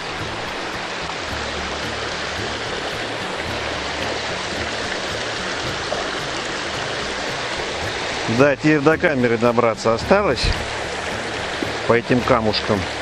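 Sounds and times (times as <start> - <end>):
stream babbling over stones: 0.0 - 13.0.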